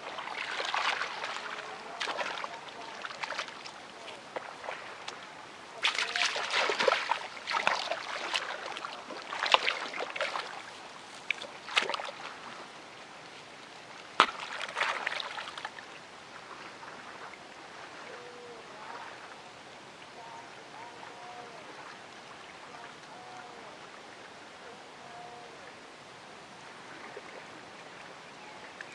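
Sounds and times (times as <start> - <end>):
hands splashing in muddy water: 0.0 - 5.2, 5.8 - 12.4, 14.2 - 15.7
sharp water slap: 5.8 - 10.5, 11.2 - 12.3, 14.2 - 15.7.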